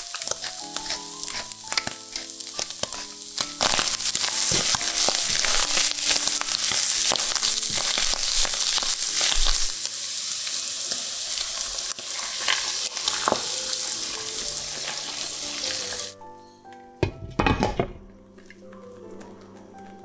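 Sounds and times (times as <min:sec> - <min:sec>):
wooden spatula stirring: 0:00.0 - 0:09.7, 0:10.8 - 0:16.1
eggs poured into pan: 0:00.0 - 0:16.2
food sizzling in hot oil: 0:00.0 - 0:16.2.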